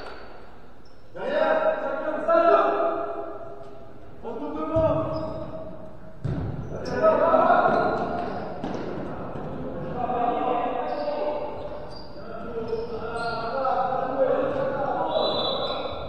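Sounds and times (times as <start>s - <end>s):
ball thudding on indoor court: 4.6s - 7.0s, 7.7s - 9.5s.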